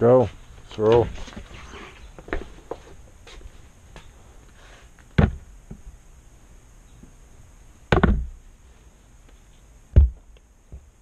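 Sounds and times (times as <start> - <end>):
loud sharp thumps: 5.2 - 5.4, 7.9 - 8.4, 9.9 - 10.3.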